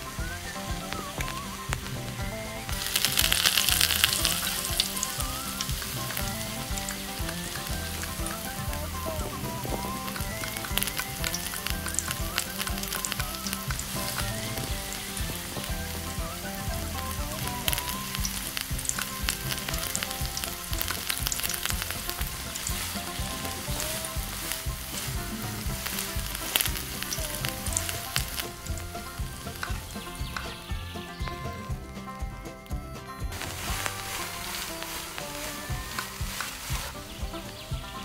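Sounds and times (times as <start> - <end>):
food sizzling in hot oil: 2.7 - 29.8.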